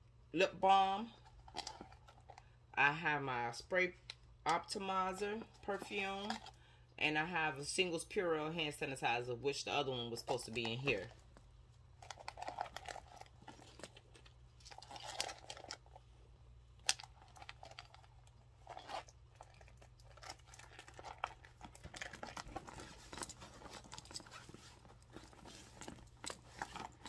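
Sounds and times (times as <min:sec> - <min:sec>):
faint low hum: 0:00.0 - 0:27.0
rummaging in a handbag: 0:01.1 - 0:02.4, 0:04.5 - 0:06.6, 0:09.9 - 0:27.0.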